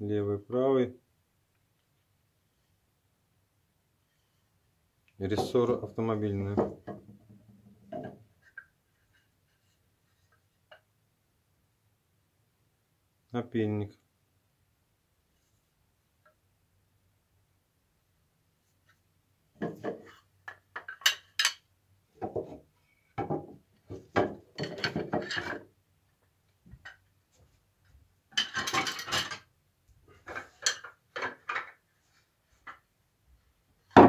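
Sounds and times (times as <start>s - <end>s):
chisels clinking together: 20.8s - 21.6s.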